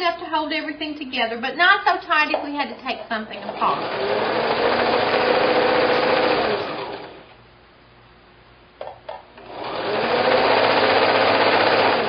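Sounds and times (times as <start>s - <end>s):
sewing machine stitching: 3.4s - 7.2s, 9.4s - 12.0s.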